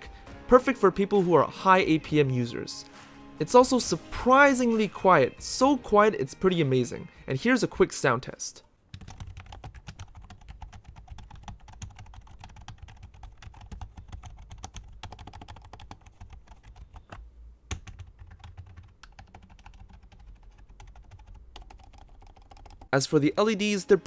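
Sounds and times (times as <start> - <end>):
keyboard typing: 8.9 - 22.9.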